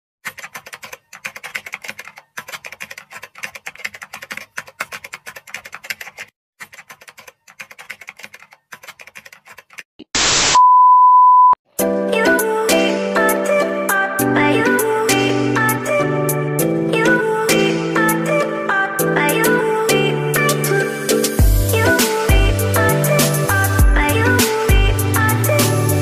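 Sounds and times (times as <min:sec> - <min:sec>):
typewriter keys clacking: 0:00.2 - 0:09.9
tv static: 0:10.1 - 0:10.7
high test-pattern beep: 0:10.5 - 0:11.6.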